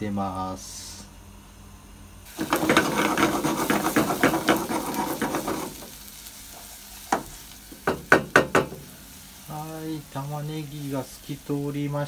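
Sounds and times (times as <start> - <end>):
onion sizzling in oil: 2.2 - 12.0
spatula scraping saucepan: 2.4 - 5.9
knock: 7.8 - 8.8.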